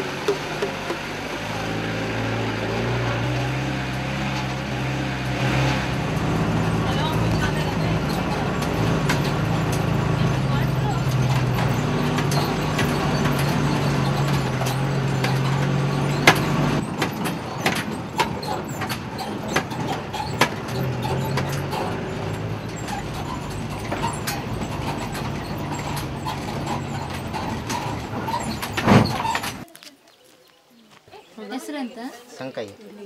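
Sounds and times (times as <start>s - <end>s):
van engine running: 0.0s - 29.6s
van body rattling over bumps: 0.0s - 29.7s
heavy thump: 5.8s - 29.6s.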